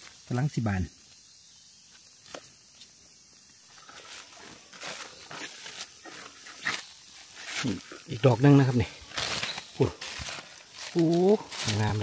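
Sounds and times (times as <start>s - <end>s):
leaves rustling: 0.0s - 12.0s.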